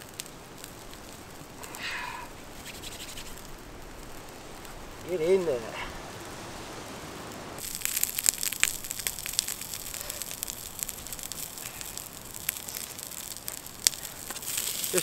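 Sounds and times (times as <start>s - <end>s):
campfire hiss: 0.0s - 15.0s
vegetables sizzling in a pan: 7.6s - 15.0s.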